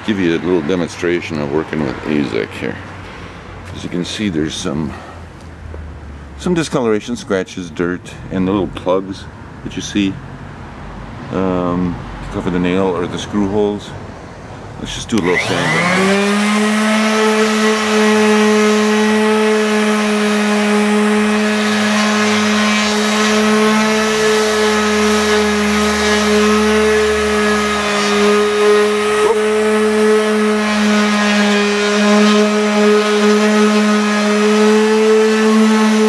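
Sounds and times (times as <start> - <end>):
palm sander motor whine: 15.1 - 36.0.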